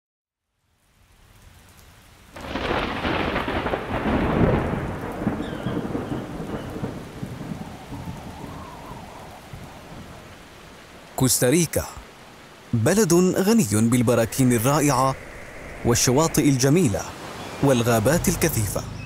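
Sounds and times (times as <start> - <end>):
steady rain: 0.4 - 19.0
thunderclap rolling: 2.4 - 11.0, 13.6 - 19.0.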